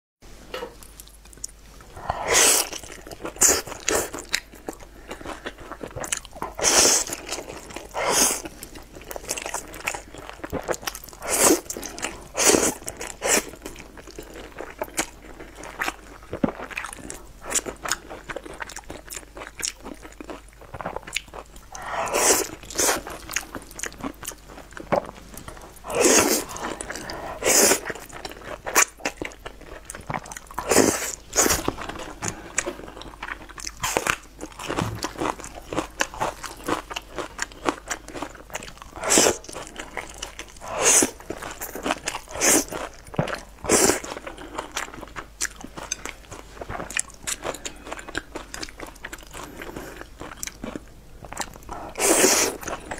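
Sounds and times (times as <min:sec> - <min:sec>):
wet chewing: 0:00.8 - 0:52.9
noodles being slurped: 0:21.7 - 0:23.2, 0:25.8 - 0:28.8, 0:51.9 - 0:52.8.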